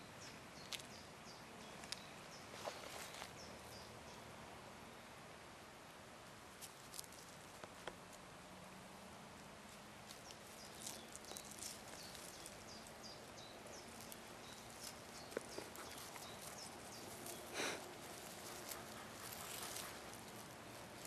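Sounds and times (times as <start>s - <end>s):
faint steady hum: 0.0s - 21.0s
rustling of dry grass and twigs: 1.8s - 3.8s, 6.4s - 8.3s, 9.0s - 21.0s.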